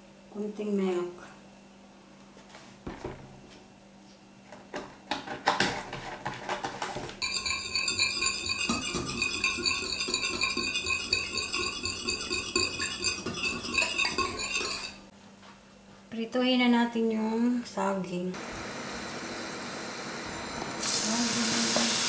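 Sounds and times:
whisk clattering against glass bowl: 7.2s - 15.1s.

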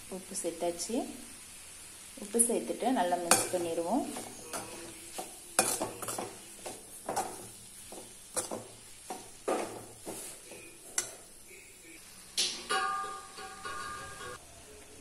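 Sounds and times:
metal spoon scraping metal pan: 3.3s - 8.7s.

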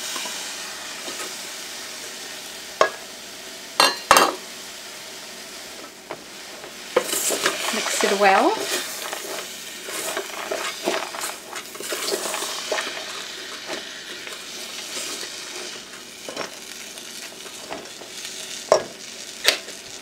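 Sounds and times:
food sizzling: 0.0s - 20.0s
spatula scraping a pot: 7.0s - 16.6s.

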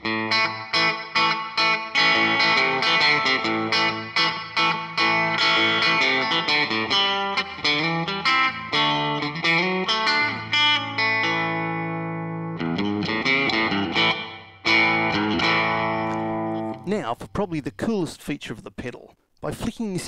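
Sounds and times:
electric guitar with reverb: 0.0s - 16.9s.

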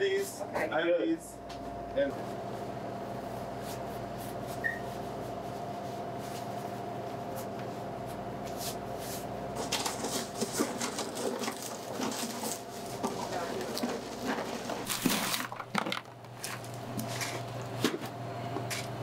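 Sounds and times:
room hum with constant tone: 0.0s - 19.0s
foil liner crinkling: 9.5s - 17.6s.

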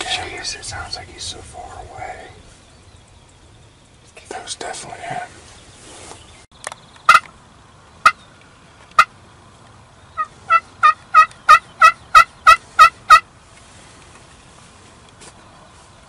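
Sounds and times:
turkey hen yelping: 10.2s - 13.2s.

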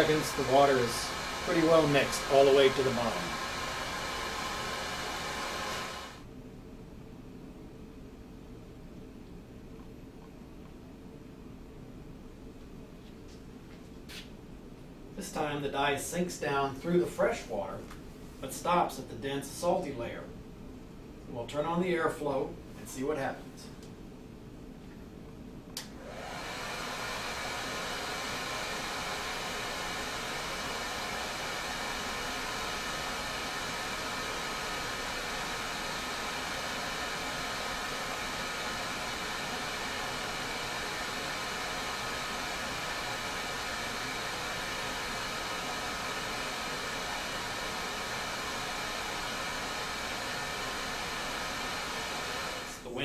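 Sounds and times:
hair dryer blowing: 0.0s - 6.3s, 25.8s - 52.9s.

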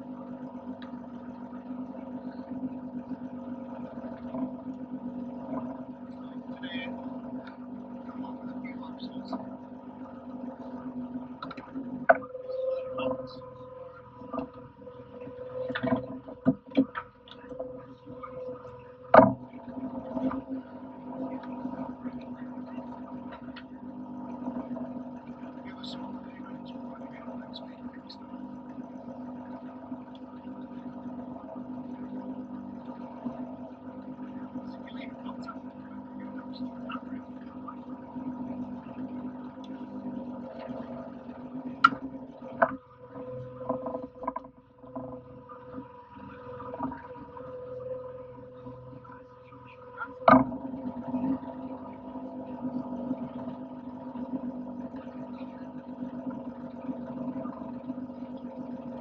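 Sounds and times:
boat engine running: 0.0s - 59.0s
sharp knocks on boat rail: 19.1s - 19.4s.

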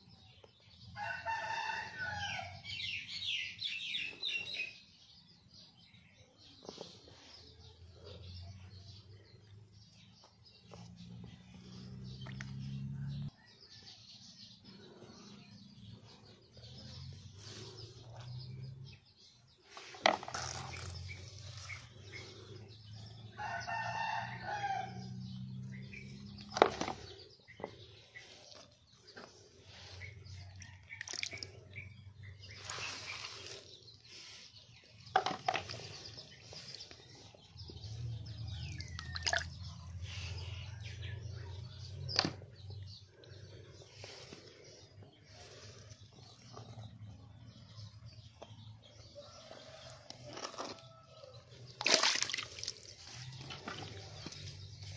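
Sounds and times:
rooster crowing: 1.0s - 2.6s, 23.3s - 25.4s.

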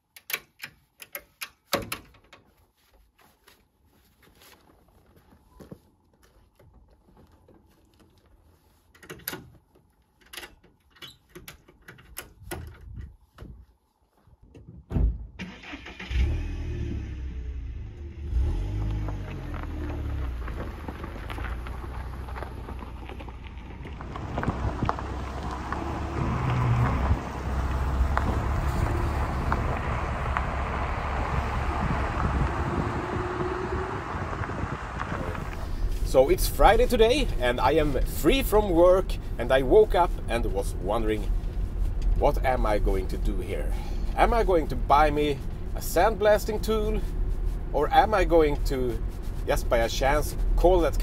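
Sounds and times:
car engine starting and running: 15.2s - 51.0s
road noise: 15.4s - 51.0s.

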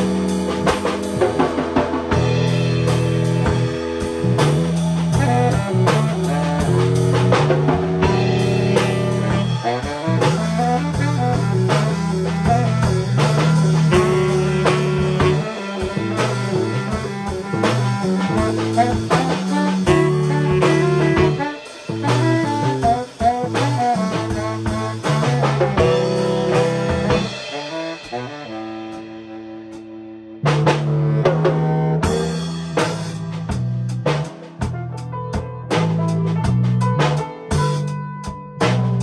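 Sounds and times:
baritone saxophone: 0.0s - 39.0s
drum kit: 0.0s - 39.0s
electric bass: 0.0s - 39.0s
piano: 0.0s - 39.0s.

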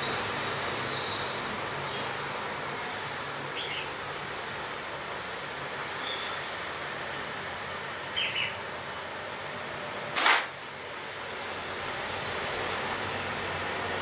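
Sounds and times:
rubber-band gun snap: 10.2s - 10.6s.

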